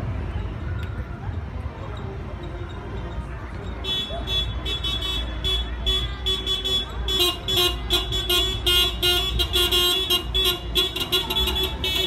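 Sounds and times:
car engines rumbling: 0:00.0 - 0:12.0
car horns honking: 0:03.8 - 0:12.0.

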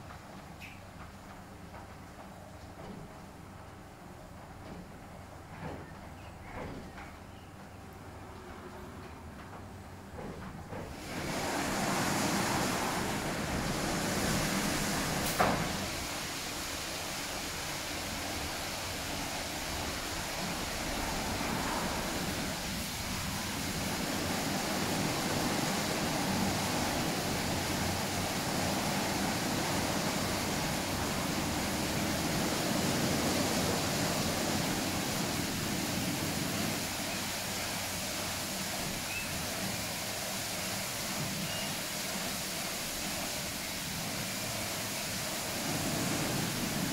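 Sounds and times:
car wash brushes and spray: 0:10.8 - 0:46.9.

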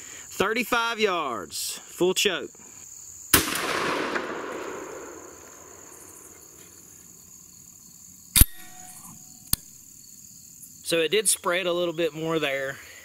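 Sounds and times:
crickets trilling: 0:00.0 - 0:13.0
shotgun shot echo: 0:03.3 - 0:06.3, 0:08.4 - 0:09.1
sharp click: 0:08.4 - 0:09.7.

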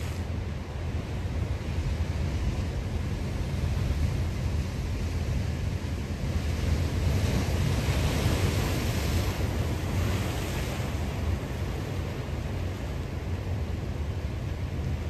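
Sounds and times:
deep rumble of waves: 0:00.0 - 0:15.0.

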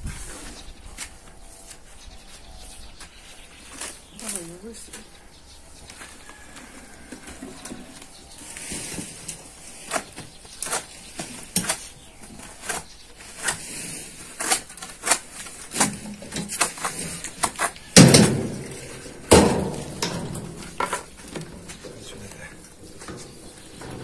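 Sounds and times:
knocks and clatter of building work: 0:14.4 - 0:24.0.

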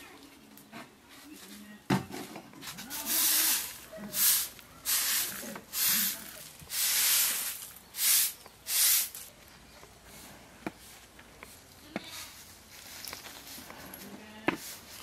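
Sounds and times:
broom sweeping a floor: 0:02.6 - 0:09.3, 0:10.1 - 0:15.0.

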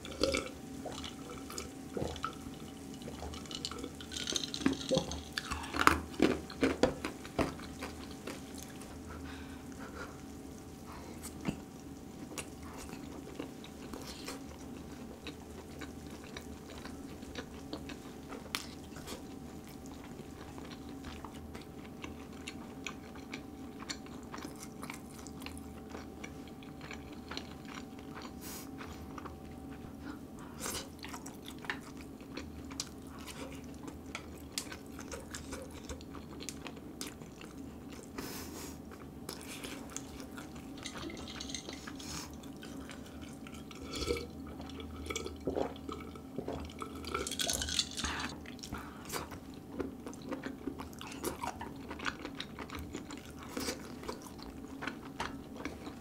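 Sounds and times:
close chewing with mouth clicks: 0:00.0 - 0:56.0
drinking water from glass: 0:40.6 - 0:48.6.

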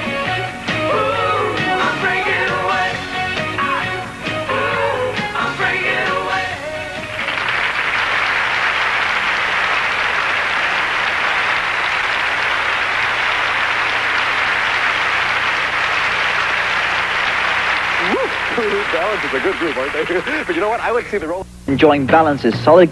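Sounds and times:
rock singing: 0:00.0 - 0:07.4
audience applauding: 0:04.5 - 0:21.4.

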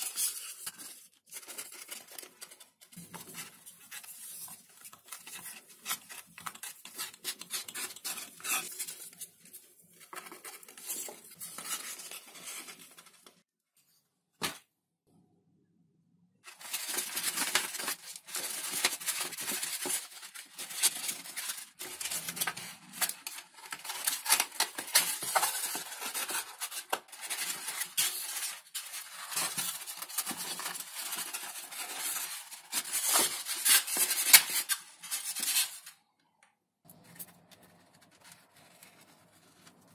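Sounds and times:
foam parts rubbing and scraping: 0:03.0 - 0:13.4.

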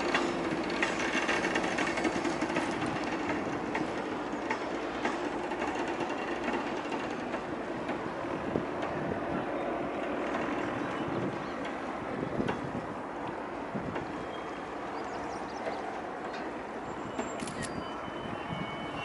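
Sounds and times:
train wheels clicking and rattling: 0:00.0 - 0:09.2, 0:09.9 - 0:17.8.

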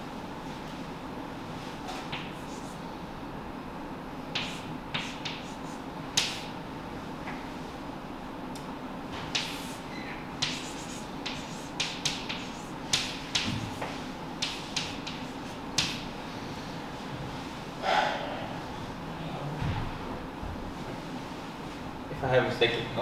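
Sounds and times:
chalk scratching on blackboard: 0:02.2 - 0:02.8, 0:04.4 - 0:06.5, 0:09.3 - 0:16.0
chalk tapping on blackboard: 0:04.4 - 0:06.5, 0:09.3 - 0:09.8, 0:10.4 - 0:16.1.

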